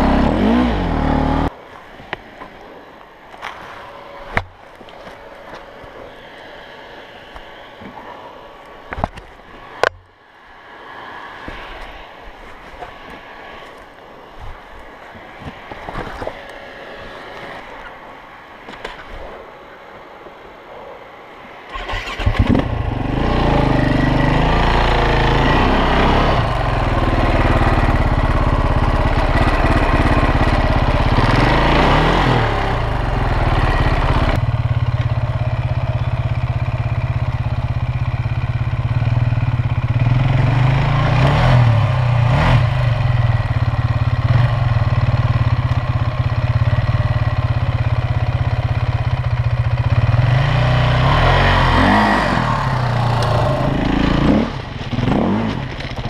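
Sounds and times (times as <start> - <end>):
motorcycle engine revving and idling: 0.0 - 1.5, 21.7 - 56.0.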